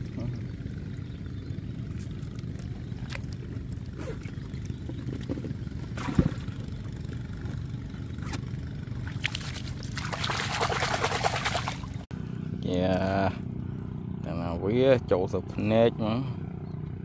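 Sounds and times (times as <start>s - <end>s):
motor droning: 11.8s - 17.0s.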